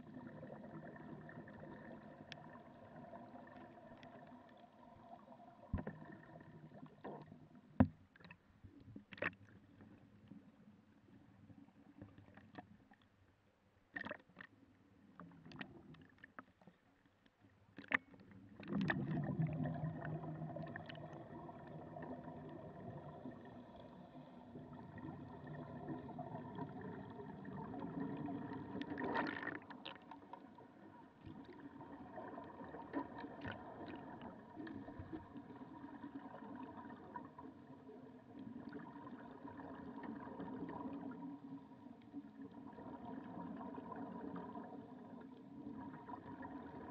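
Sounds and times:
exhaled bubbles underwater: 0:00.0 - 0:07.6, 0:18.4 - 0:46.9
underwater motor hum: 0:00.0 - 0:07.9, 0:18.3 - 0:46.9.

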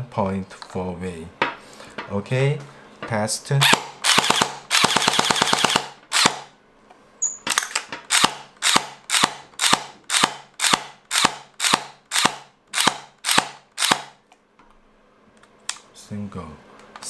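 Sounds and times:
gel blaster firing snaps: 0:03.6 - 0:06.5.

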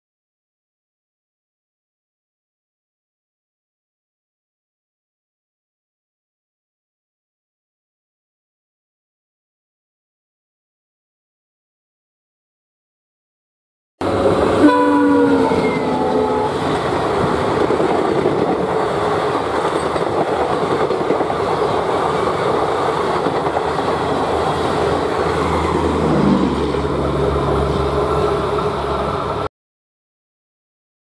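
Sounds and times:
locomotive horn: 0:14.0 - 0:16.8
train coaches rumbling on rails: 0:14.0 - 0:29.5.

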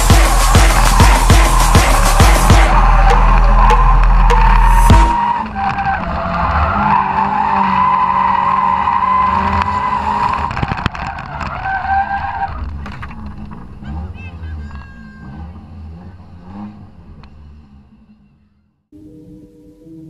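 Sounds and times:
loud music: 0:00.0 - 0:05.4
car engine running hard: 0:00.0 - 0:11.6, 0:12.2 - 0:18.6.

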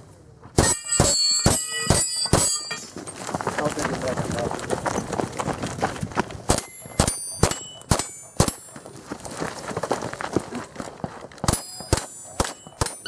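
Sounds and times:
steel plates ringing: 0:00.6 - 0:03.0, 0:06.6 - 0:09.0, 0:11.5 - 0:13.0.

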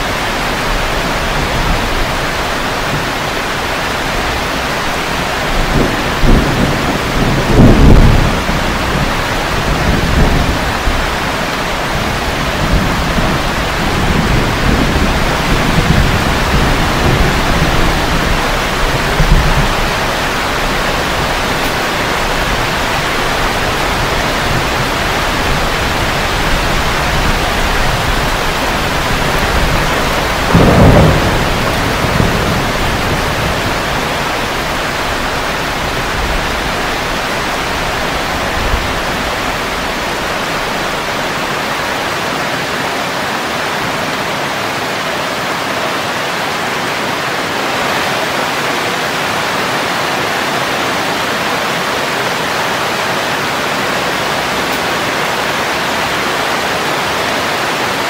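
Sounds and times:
thunder rumbling: 0:00.0 - 0:42.2
heavy rain on leaves: 0:00.0 - 0:58.0
loud thunderclap: 0:05.5 - 0:41.5.

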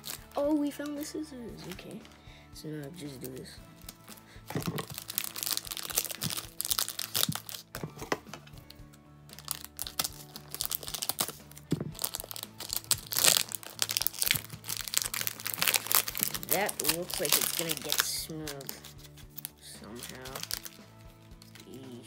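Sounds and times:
plastic shrink-wrap crinkling: 0:00.0 - 0:02.2, 0:03.0 - 0:08.7, 0:09.4 - 0:22.0
background music: 0:00.0 - 0:22.0.

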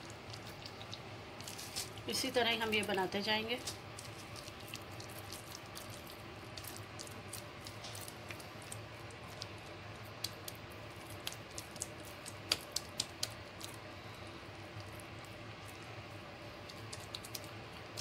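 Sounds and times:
low steady hum: 0:00.0 - 0:18.0
hands mixing in plastic bowl: 0:00.3 - 0:13.8.

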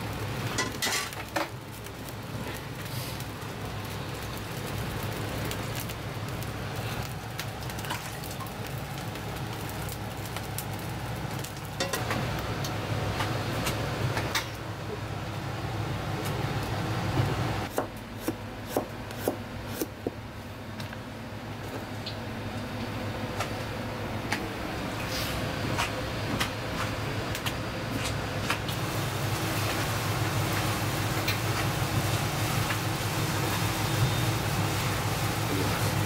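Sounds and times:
gas burner hum: 0:00.0 - 0:36.0
knife chopping on cutting board: 0:17.7 - 0:19.9.

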